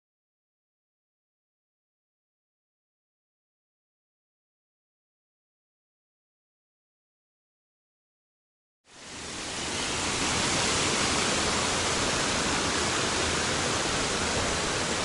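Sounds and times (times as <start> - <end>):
stream rushing over stones: 8.9 - 15.0.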